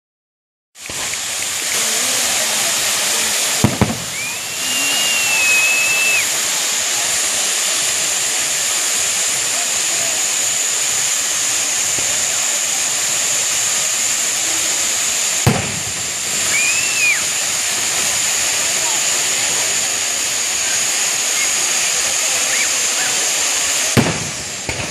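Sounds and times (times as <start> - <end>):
spark fountain hissing: 0.8 - 24.9
high whistle-like note: 4.1 - 6.4, 16.4 - 17.4
sharp thump: 15.4 - 15.8.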